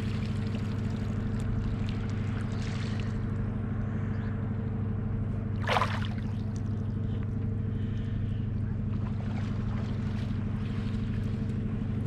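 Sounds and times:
ship engine droning: 0.0s - 12.0s
water splash: 5.6s - 6.4s.

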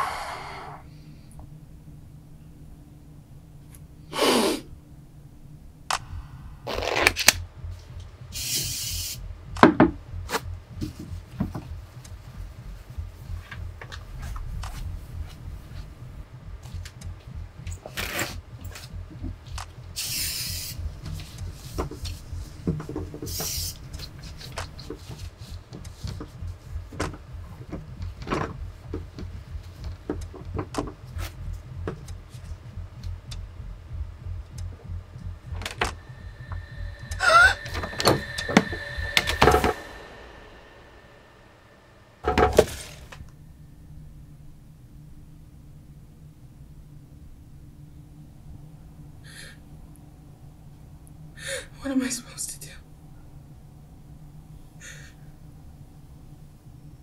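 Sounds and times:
low steady hum: 0.0s - 57.0s
aerosol spray hissing: 8.3s - 9.2s, 20.0s - 20.8s, 23.3s - 23.8s.

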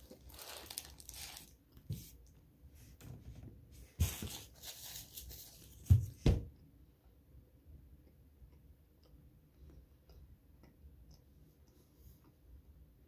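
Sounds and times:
paper wrapper crinkling: 0.0s - 1.6s, 4.0s - 5.8s
dull thumps: 5.8s - 6.6s.

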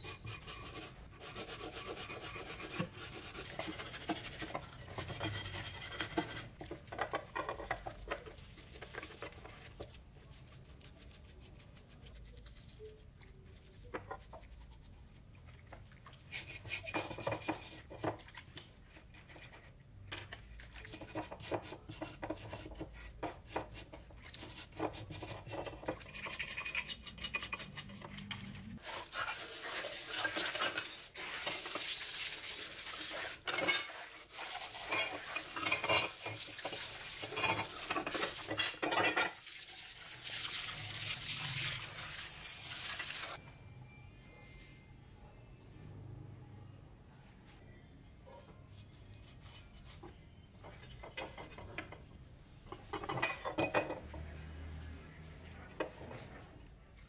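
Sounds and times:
brush scrubbing metal: 0.0s - 6.6s, 20.8s - 38.6s
water running and splashing: 39.4s - 43.4s.

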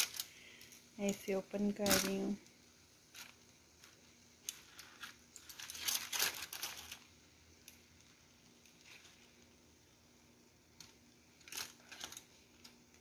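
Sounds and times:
foil and paper crinkling: 4.6s - 7.0s.

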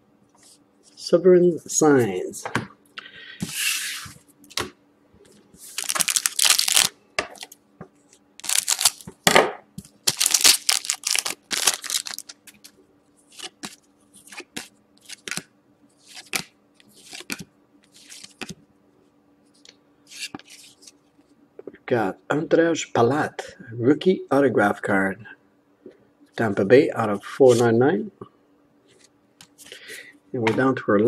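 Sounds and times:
plastic wrapper tearing and crinkling: 5.7s - 7.5s, 8.4s - 9.1s, 10.0s - 12.7s.

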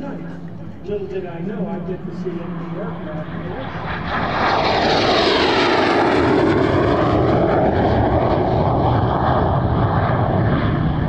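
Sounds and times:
jet engine roaring in afterburner: 0.0s - 11.0s.

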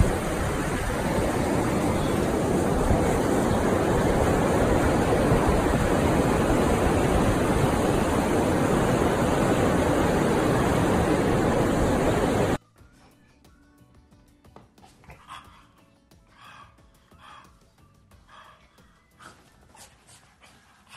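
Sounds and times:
ocean surf rushing: 0.0s - 12.6s
wind on microphone: 0.0s - 12.6s.

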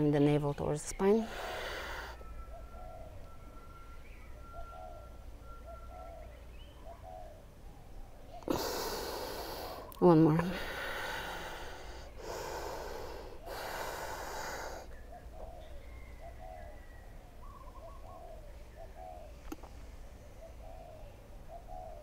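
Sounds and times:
faint bird calls: 0.6s - 22.0s
heavy breathing: 1.2s - 2.3s, 8.5s - 14.9s.

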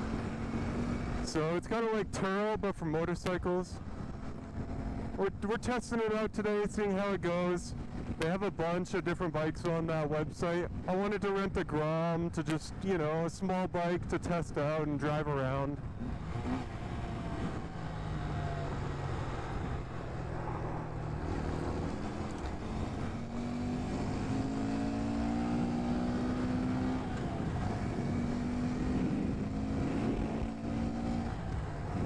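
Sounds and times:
steady rushing noise: 15.7s - 32.0s.

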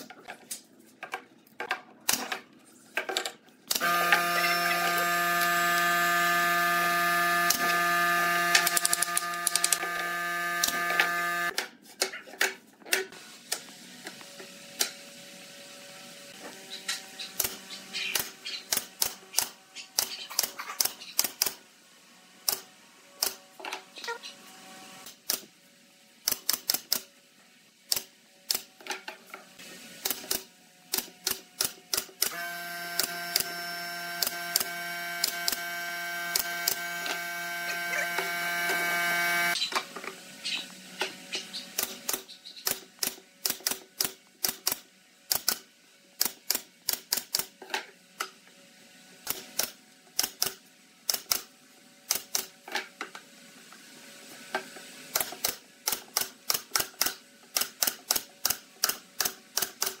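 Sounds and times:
steady machine hum: 3.7s - 11.6s, 32.3s - 39.6s.

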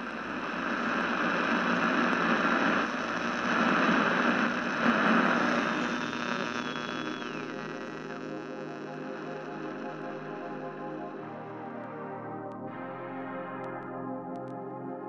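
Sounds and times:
electrical hum: 0.0s - 10.0s
static hiss: 0.0s - 11.1s.

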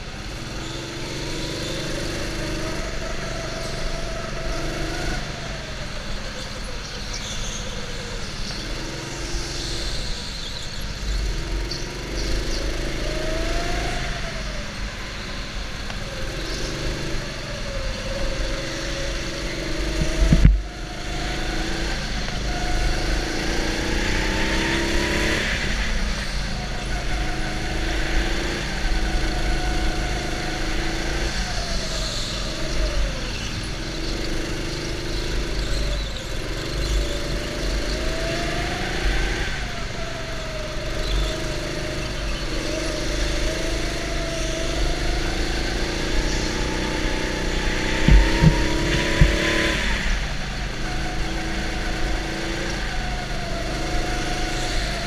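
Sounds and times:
go-kart motor revving: 0.0s - 55.0s
low rumble: 19.6s - 21.1s, 47.4s - 50.4s
sharp thumps: 19.9s - 20.7s, 47.5s - 50.1s.

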